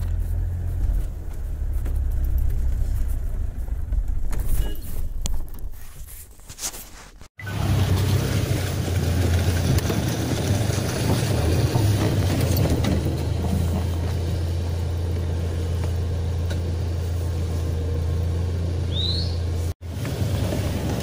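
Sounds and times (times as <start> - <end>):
car engine hum inside cabin: 0.0 - 5.0, 13.5 - 21.0
road noise: 0.0 - 21.0.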